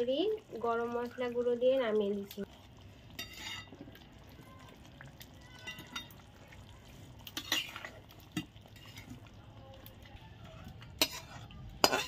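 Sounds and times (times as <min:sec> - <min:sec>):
metal spatula scraping metal pan: 0:03.2 - 0:03.7, 0:07.3 - 0:09.1, 0:10.8 - 0:12.0.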